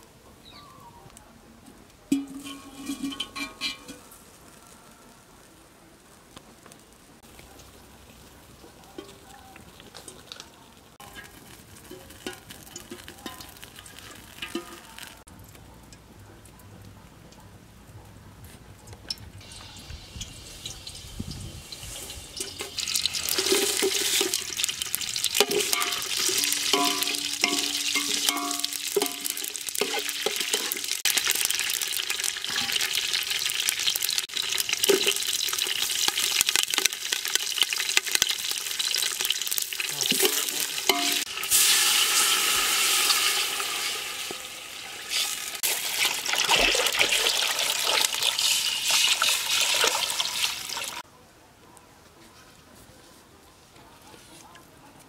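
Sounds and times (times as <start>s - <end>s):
metallic clinks of stirring: 2.1s - 4.1s, 22.4s - 30.9s, 40.1s - 41.3s
spices sizzling in hot oil: 6.9s - 15.3s, 19.4s - 51.0s.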